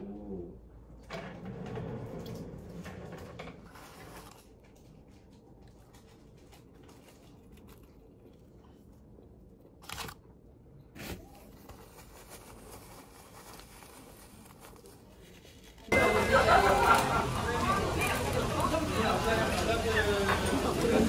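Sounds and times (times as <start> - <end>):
paper liner crinkling: 3.7 - 10.2, 11.0 - 16.0.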